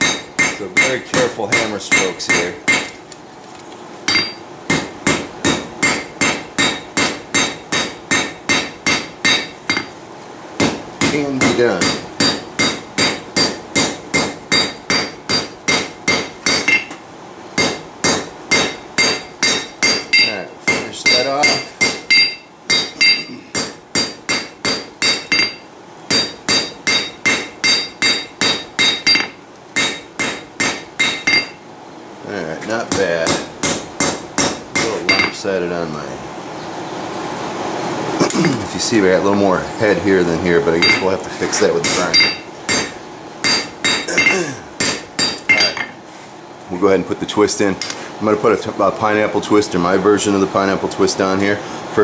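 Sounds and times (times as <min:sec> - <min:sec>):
hammer striking metal on anvil: 0:00.0 - 0:03.0, 0:04.1 - 0:09.9, 0:10.6 - 0:17.0, 0:17.6 - 0:31.6, 0:32.9 - 0:35.4, 0:40.8 - 0:41.1, 0:41.8 - 0:45.9.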